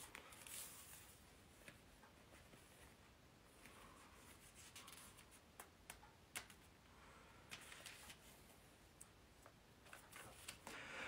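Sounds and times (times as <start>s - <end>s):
soft rustles: 0.0s - 5.4s.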